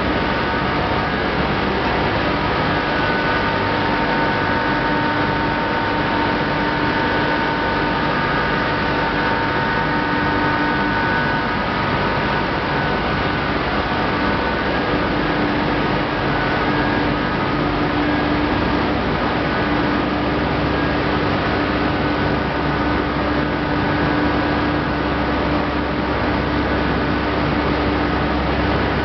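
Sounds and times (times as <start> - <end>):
machinery humming and whining: 0.0 - 29.0.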